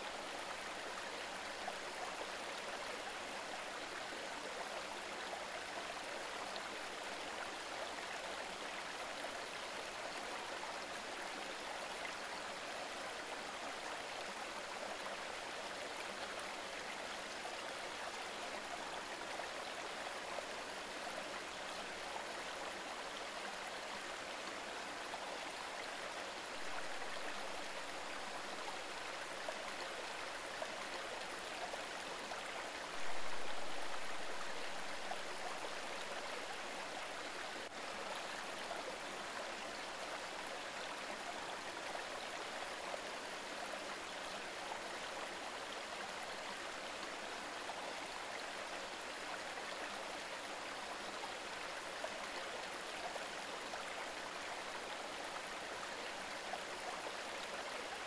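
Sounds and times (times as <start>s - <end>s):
river current flowing: 25.4s - 46.9s.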